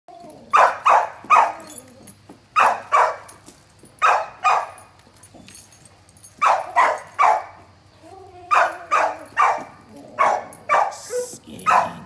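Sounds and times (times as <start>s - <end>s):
dog barking: 0.5s - 1.6s, 2.6s - 3.3s, 4.0s - 4.8s, 6.4s - 7.6s, 8.5s - 12.0s.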